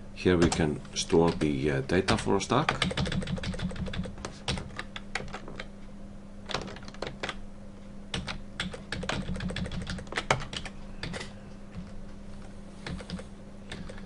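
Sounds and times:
steady low hum: 0.0s - 14.0s
keyboard keys clicking: 2.1s - 5.7s, 6.5s - 7.4s, 8.1s - 11.3s, 12.8s - 14.0s.

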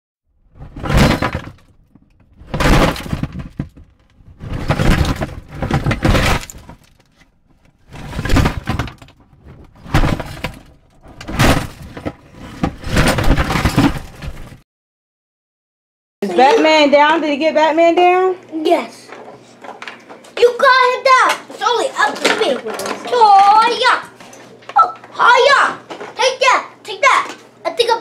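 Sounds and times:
loud crashing shattering noises: 0.6s - 6.9s, 7.9s - 14.6s.

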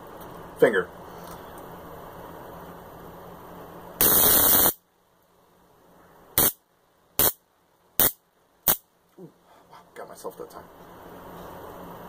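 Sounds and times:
stun stick electric crackle: 4.0s - 4.8s, 6.4s - 6.6s, 7.2s - 7.4s, 8.0s - 8.9s.

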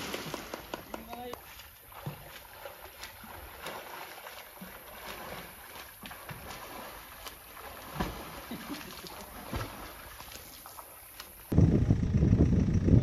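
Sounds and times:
swimming splashes: 0.0s - 11.5s
louder thump in water: 7.9s - 8.8s, 9.4s - 9.9s.

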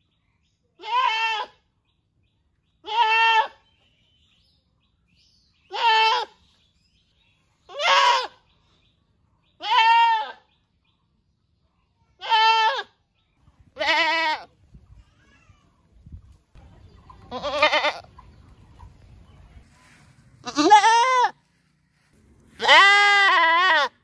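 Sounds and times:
goats bleating: 2.8s - 3.6s, 5.7s - 6.3s, 9.6s - 10.4s, 12.2s - 12.9s, 13.8s - 14.5s, 17.3s - 18.1s, 20.4s - 21.4s, 22.6s - 24.0s.

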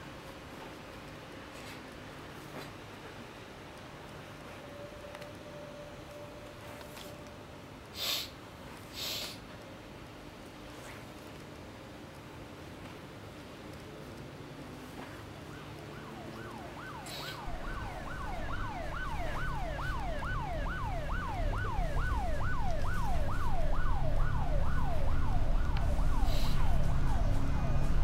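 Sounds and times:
siren yelping: 15.5s - 28.0s
deep low rumble: 17.4s - 28.0s.

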